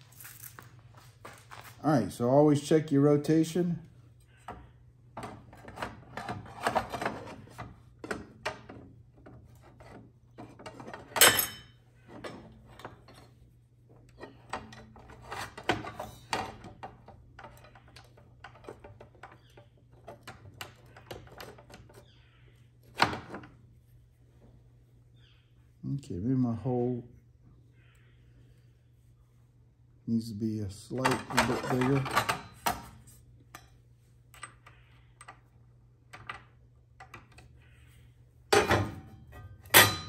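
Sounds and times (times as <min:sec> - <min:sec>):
metal clank: 0:38.5 - 0:40.0.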